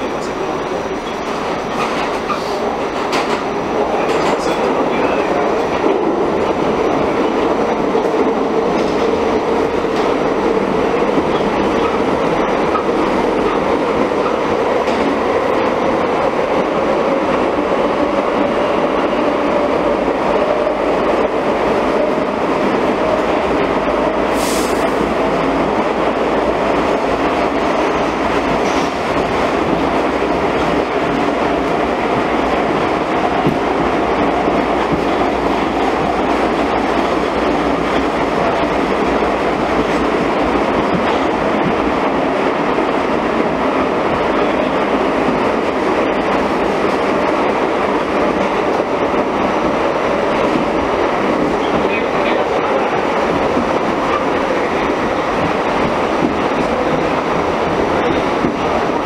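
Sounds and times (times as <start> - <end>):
wheels rumbling on rail: 0.0 - 59.0
brief high hiss: 24.4 - 25.0.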